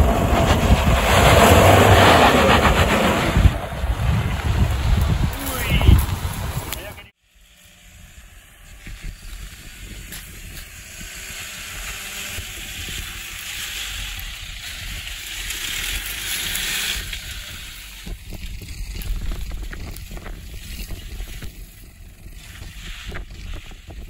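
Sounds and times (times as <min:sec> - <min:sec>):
wind noise on microphone: 0:00.0 - 0:07.1, 0:07.9 - 0:24.0
hissing rush: 0:00.0 - 0:07.2
diesel engine working under load: 0:00.0 - 0:24.0.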